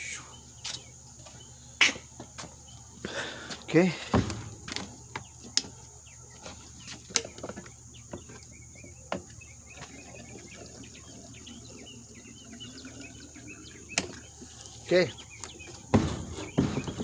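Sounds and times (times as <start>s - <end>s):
fuel trickling and gurgling: 7.6s - 16.9s
faint bubbling chirps: 8.5s - 15.9s
spout clicking against tank: 13.9s - 14.3s.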